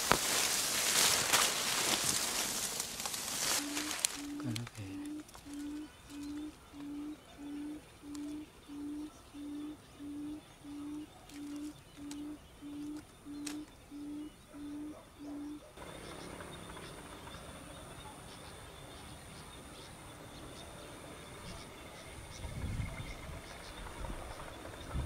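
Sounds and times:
faint background noise: 0:00.0 - 0:25.0
electronic bird call hooting: 0:03.5 - 0:15.6.

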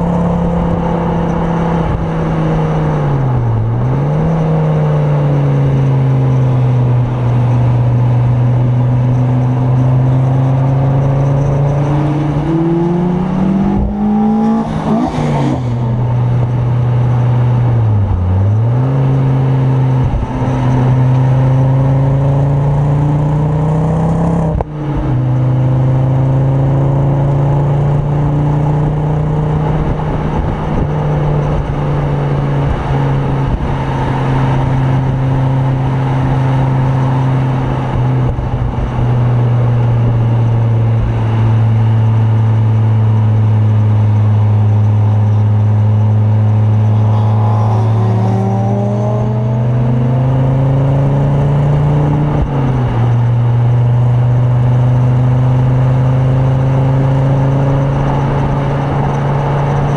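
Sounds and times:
car engine revving: 0:00.0 - 0:59.9.

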